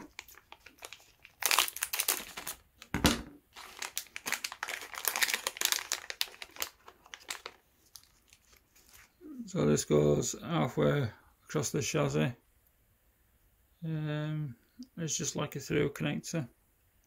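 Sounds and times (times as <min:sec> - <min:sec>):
plastic bags crinkling: 0:00.0 - 0:09.2.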